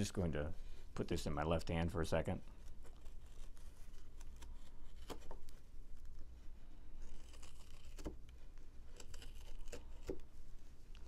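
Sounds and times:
knife scraping cut into wood: 7.0s - 10.2s.

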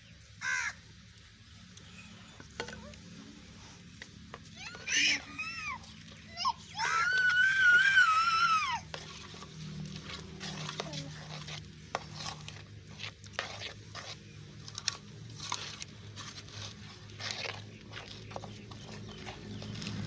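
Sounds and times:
spoon stirring sticky mix: 8.1s - 20.0s
spoon scraping steel pot: 8.9s - 20.0s.

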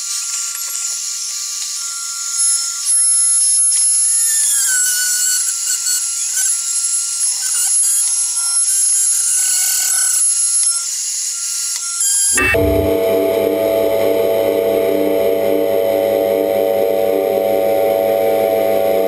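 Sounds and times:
spindle whine: 12.3s - 19.0s.

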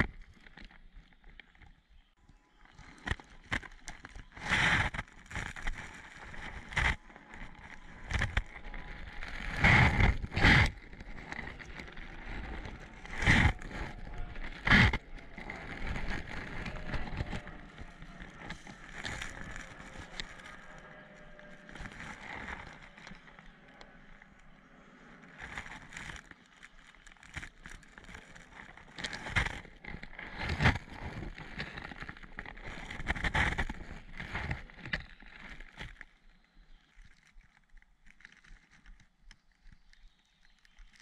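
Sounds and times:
footsteps in undergrowth: 2.6s - 24.6s.

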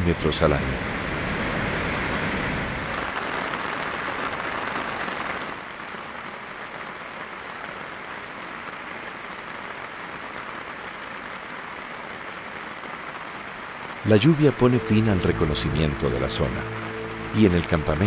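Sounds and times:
waterfall rushing: 0.0s - 3.2s, 14.0s - 18.0s
steady rain falling: 0.0s - 18.0s.

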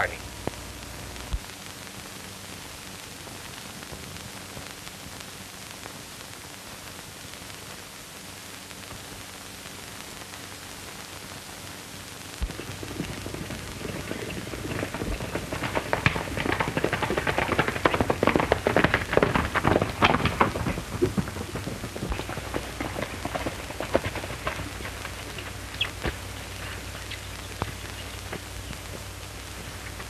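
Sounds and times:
film soundtrack hiss and hum: 0.0s - 30.0s
horses galloping on dirt road: 12.4s - 30.0s.

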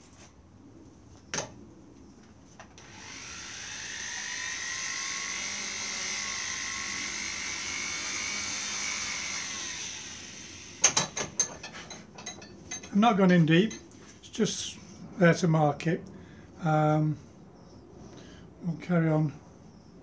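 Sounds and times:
rotary tool whining: 2.8s - 12.9s.

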